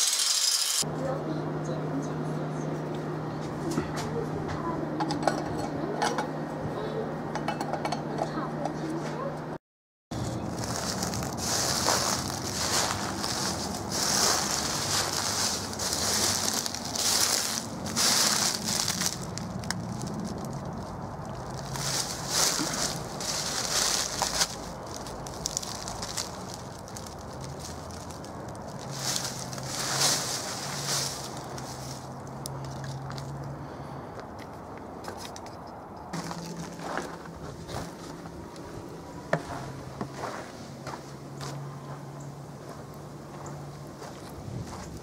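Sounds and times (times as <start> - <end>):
footsteps crunching dry leaves: 10.1 - 33.5, 36.2 - 38.5, 39.4 - 42.0, 42.6 - 45.0.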